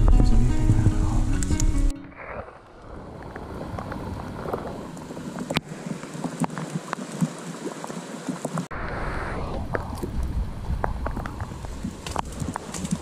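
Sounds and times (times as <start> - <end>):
rain dripping ticks: 2.8 - 8.7, 9.7 - 13.0.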